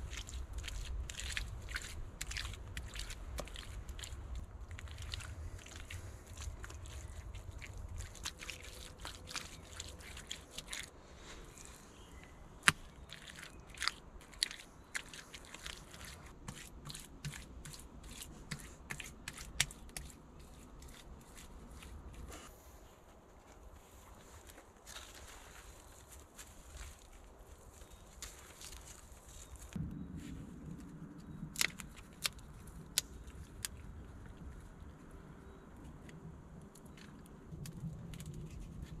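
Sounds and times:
hands scraping wet mud plaster: 0.0s - 10.9s, 11.6s - 22.5s.

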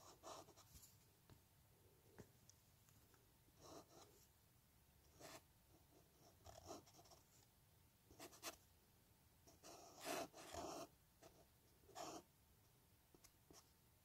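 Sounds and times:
marker scratching on paper: 5.2s - 7.2s, 8.1s - 8.6s, 9.5s - 12.3s.

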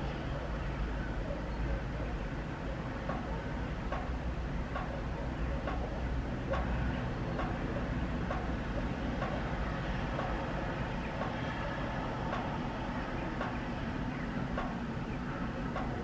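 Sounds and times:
distant diesel locomotive rumble: 0.0s - 16.0s
faint clicks: 5.6s - 5.9s, 7.4s - 7.6s.

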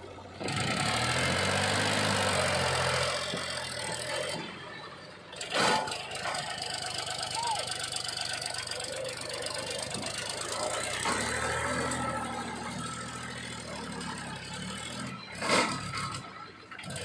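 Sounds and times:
tractor diesel engine under load: 0.0s - 17.0s.

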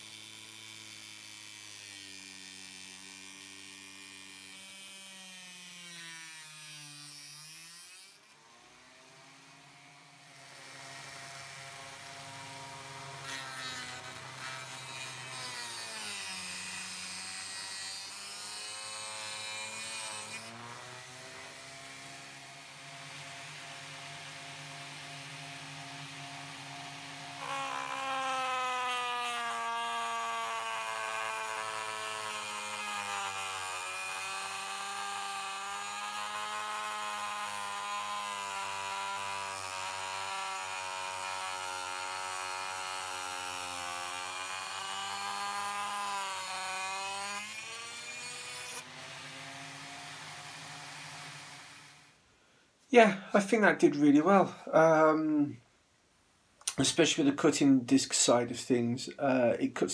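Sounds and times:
rotary tool cutting metal rail: 0.0s - 8.4s, 10.9s - 22.2s, 26.7s - 52.1s.

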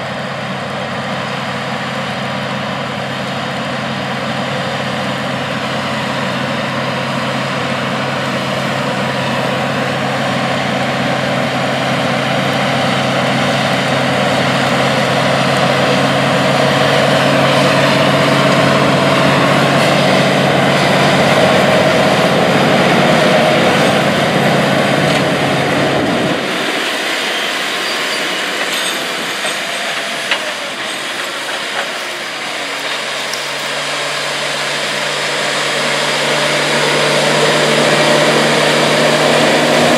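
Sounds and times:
tractor diesel engine under load: 0.0s - 39.9s
rubber track and tillage noise: 0.1s - 39.9s.

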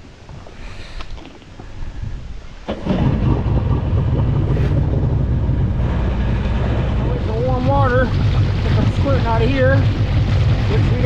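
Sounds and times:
light wind: 0.0s - 11.0s
water noise: 0.0s - 11.0s
watercraft engine starting and running: 2.7s - 11.0s.

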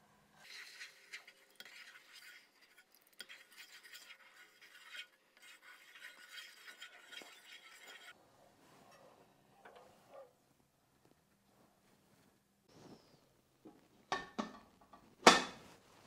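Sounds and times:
wooden spatula scraping a pot: 0.4s - 10.3s.

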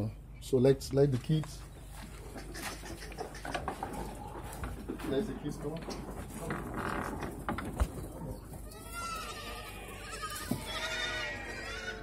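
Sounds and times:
scuffling: 1.1s - 10.8s
goats bleating: 8.6s - 12.0s.

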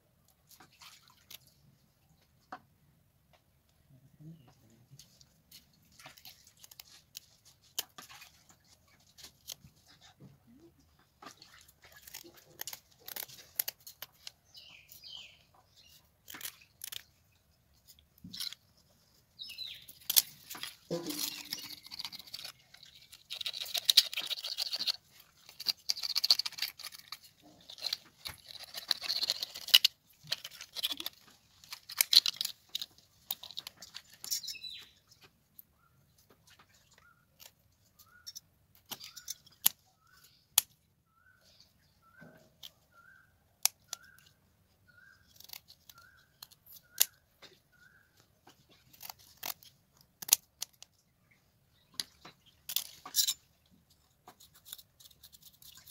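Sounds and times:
stick scraping fish scales: 11.2s - 35.2s, 36.8s - 40.7s, 45.0s - 47.6s, 48.5s - 50.9s, 52.0s - 55.9s
scissors snipping: 11.4s - 14.4s, 48.8s - 50.9s.

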